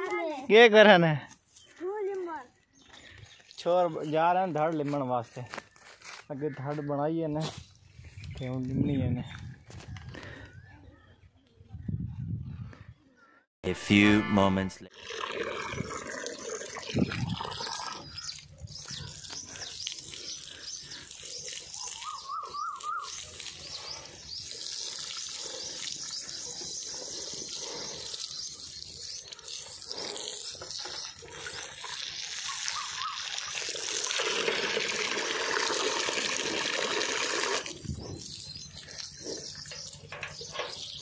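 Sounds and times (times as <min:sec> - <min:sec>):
water splashing into metal bucket: 0:30.5 - 0:37.9.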